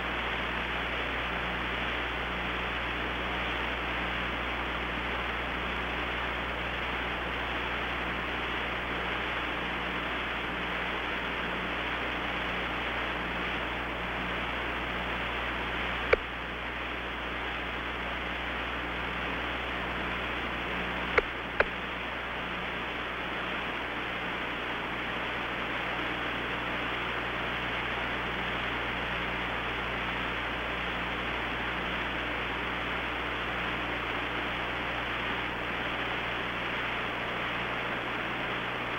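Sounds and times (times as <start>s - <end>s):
radio hiss: 0.0s - 38.9s.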